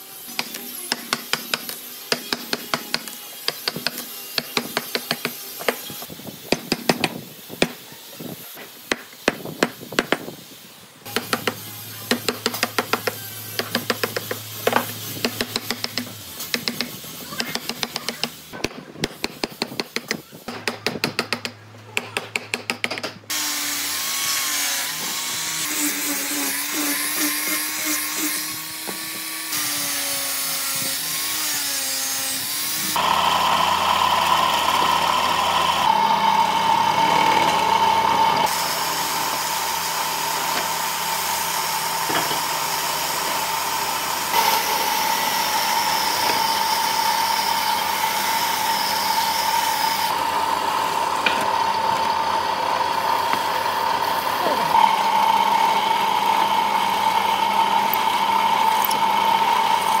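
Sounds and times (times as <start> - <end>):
high-pitched power tool running: 23.3 - 60.0
power tool motor wavering pitch: 23.3 - 60.0.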